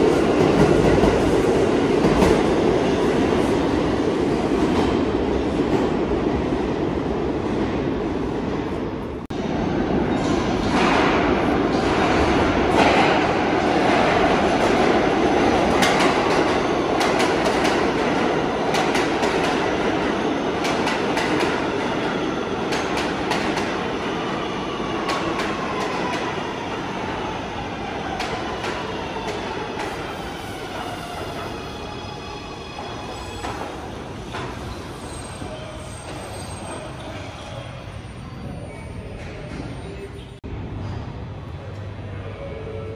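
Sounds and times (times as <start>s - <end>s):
subway wheels clicking over joints: 10.0s - 24.0s.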